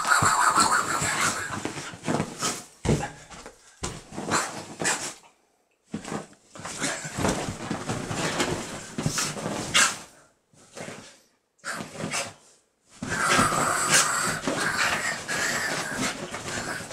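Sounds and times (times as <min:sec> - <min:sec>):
bedding rustling: 0:00.0 - 0:05.2, 0:05.9 - 0:16.9
dog growling and snarling: 0:13.0 - 0:16.9.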